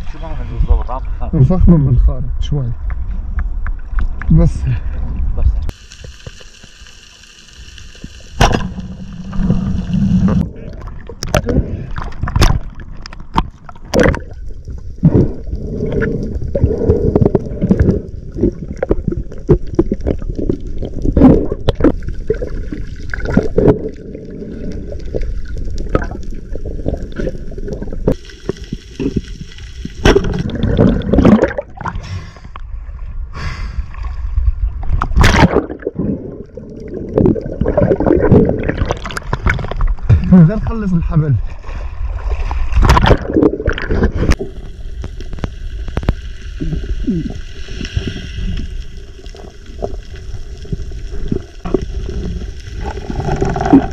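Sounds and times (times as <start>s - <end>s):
water gurgling underwater: 8.0s - 32.1s, 33.9s - 40.5s, 41.4s - 53.9s.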